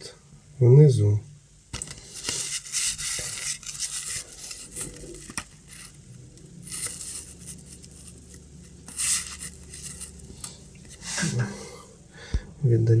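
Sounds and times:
paper stamps rustling: 0:01.8 - 0:06.0, 0:06.6 - 0:11.0.

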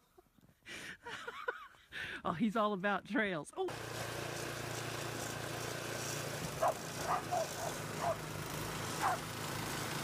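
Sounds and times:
snowblower engine running: 0:03.7 - 0:10.0
dog barking: 0:06.6 - 0:08.2, 0:09.0 - 0:09.2.

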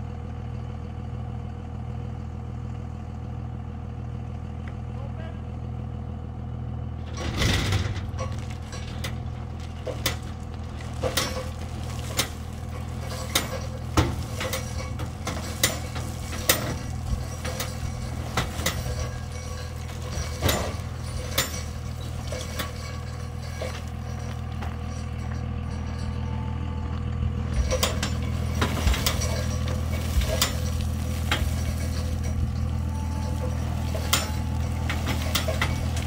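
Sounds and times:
diesel engine running at low revs: 0:00.0 - 0:36.0
gravel clicks and crunches: 0:07.8 - 0:36.0.

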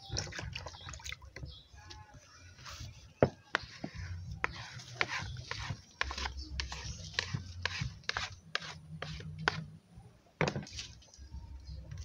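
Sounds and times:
stick scraping dough in bowl: 0:03.5 - 0:09.7.

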